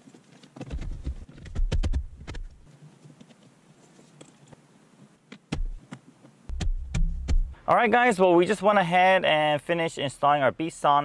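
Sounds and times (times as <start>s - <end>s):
low knock: 6.5s - 7.6s.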